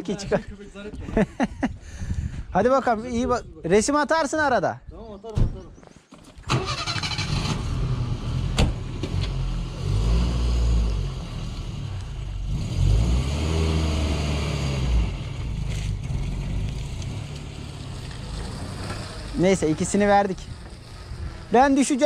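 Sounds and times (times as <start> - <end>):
vehicle engine running: 15.1 - 22.0.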